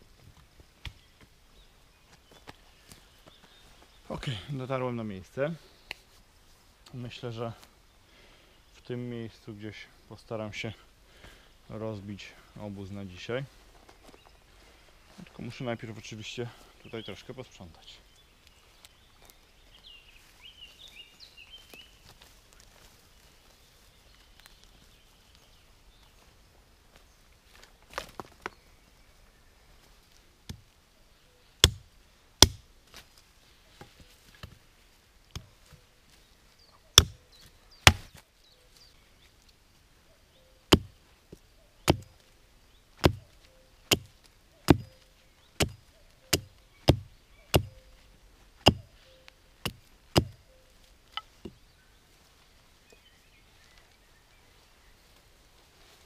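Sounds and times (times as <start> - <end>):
hatchet chopping wood: 31.6 - 32.7, 37.0 - 37.2, 37.8 - 38.2, 40.7 - 41.0, 41.9 - 42.1, 43.0 - 43.3, 43.9 - 44.1, 44.7 - 45.0, 45.6 - 47.8, 48.6 - 48.9, 49.6 - 50.4.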